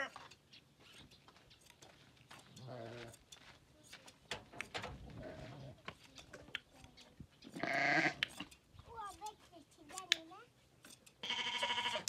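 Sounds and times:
sheep bleating: 7.6s - 8.2s, 11.2s - 12.0s.

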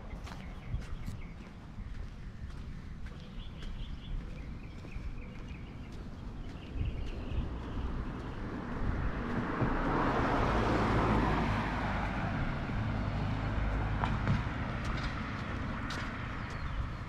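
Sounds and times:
low engine hum: 0.0s - 17.0s
car driving past: 7.7s - 16.4s.

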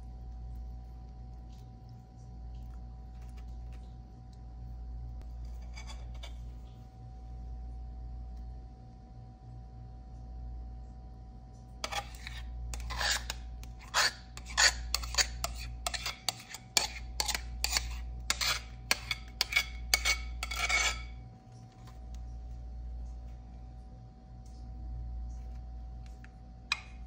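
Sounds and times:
utensil scraping ceramic bowl: 5.2s - 6.7s, 11.8s - 22.0s.

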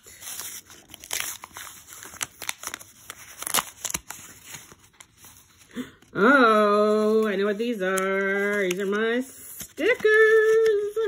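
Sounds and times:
paper envelope being torn: 0.0s - 5.6s.

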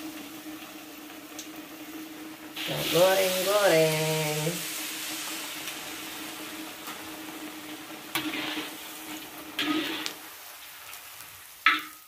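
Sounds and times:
food deep-frying in oil: 0.0s - 12.0s
metal spatula moving food: 8.1s - 10.2s.

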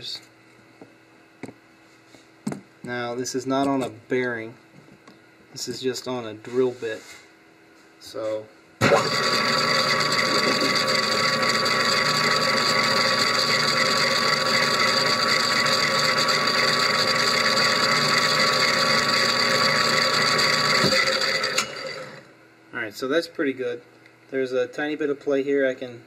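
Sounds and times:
lathe spinning plastic gears: 8.8s - 22.2s.

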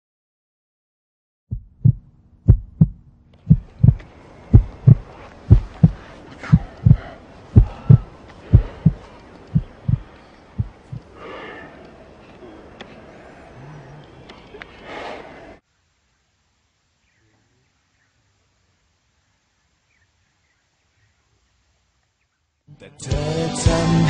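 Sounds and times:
heartbeat thumps: 1.5s - 11.1s.

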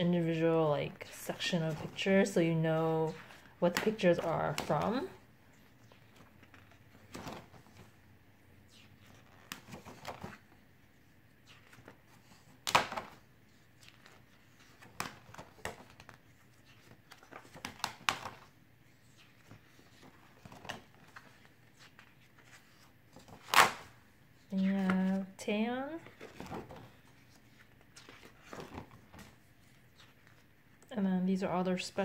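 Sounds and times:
stiff pages being turned: 3.1s - 8.0s, 8.6s - 25.3s, 26.0s - 30.9s.

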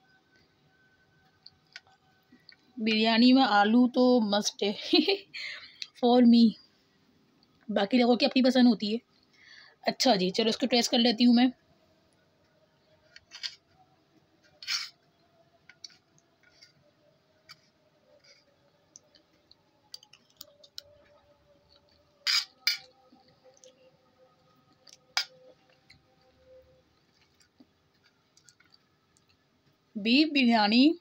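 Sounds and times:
faint steady hum: 0.0s - 31.0s
metal spoon scraping steel plate: 14.6s - 15.0s, 22.2s - 22.9s.

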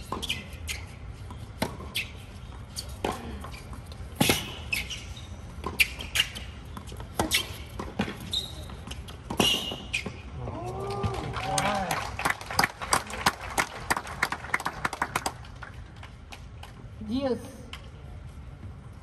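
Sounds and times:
tennis ball bouncing: 0.0s - 10.2s
shoe squeaks on court: 0.0s - 10.4s
racket striking tennis ball: 1.4s - 2.2s, 4.0s - 10.2s.

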